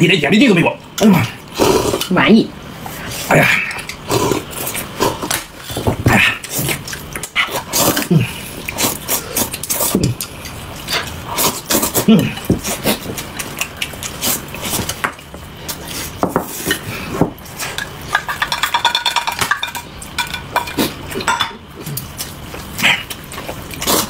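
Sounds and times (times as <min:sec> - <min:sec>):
utensils clinking on dishes: 0:17.6 - 0:21.6.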